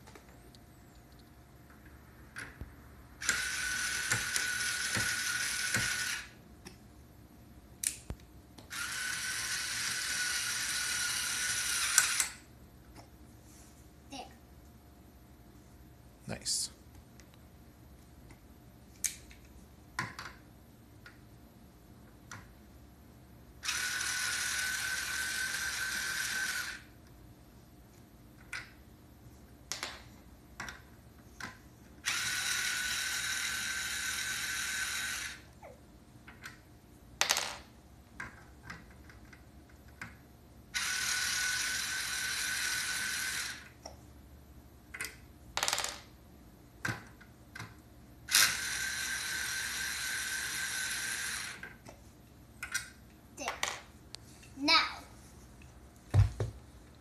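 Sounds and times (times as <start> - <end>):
toy electric drill whirring: 3.2 - 6.4, 8.7 - 12.4, 23.6 - 26.9, 32.0 - 35.5, 40.8 - 43.8, 48.3 - 51.6.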